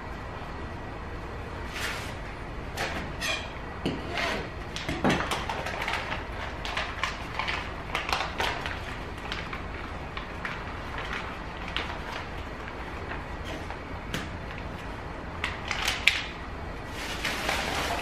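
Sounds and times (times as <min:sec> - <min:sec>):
plastic bag crinkling: 0:05.2 - 0:13.8, 0:16.9 - 0:18.0.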